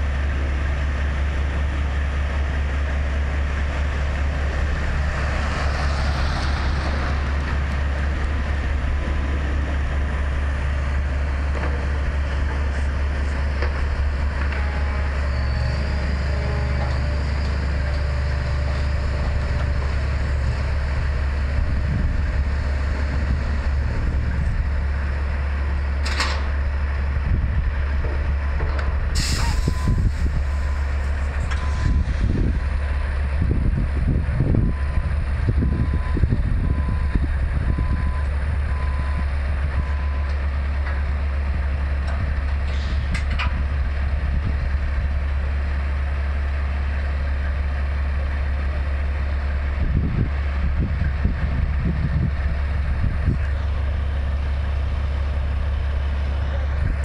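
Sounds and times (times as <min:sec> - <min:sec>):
diesel truck engines droning: 0:00.0 - 0:57.0
air release hisses: 0:29.2 - 0:30.3.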